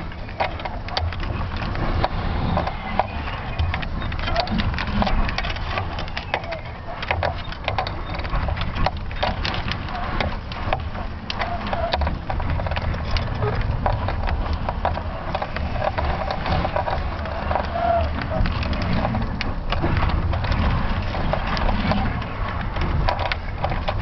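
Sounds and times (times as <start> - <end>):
irregular clicks and crackles: 0.0 - 24.0
wind buffeting microphone: 0.0 - 24.0.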